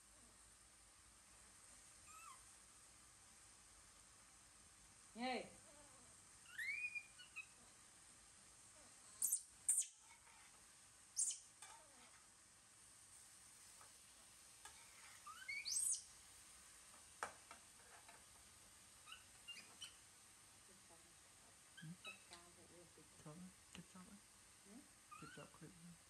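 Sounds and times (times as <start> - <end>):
high-pitched animal chirps: 2.1 - 2.4, 6.5 - 7.6, 9.2 - 10.1, 11.2 - 11.5, 15.0 - 16.1, 19.0 - 20.0, 21.8 - 22.3, 25.1 - 25.5.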